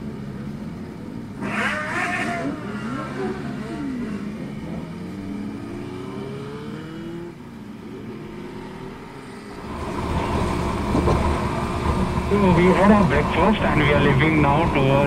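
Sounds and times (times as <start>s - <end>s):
close motorcycle low rumble: 0.0s - 8.4s
motorcycles revving and pulling away: 0.0s - 15.0s.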